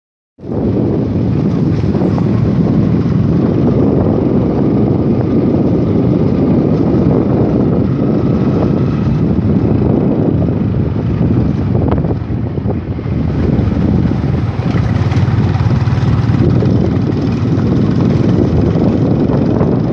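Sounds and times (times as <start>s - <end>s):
motorcycle engine running: 0.4s - 19.9s
wind on microphone: 0.4s - 19.9s.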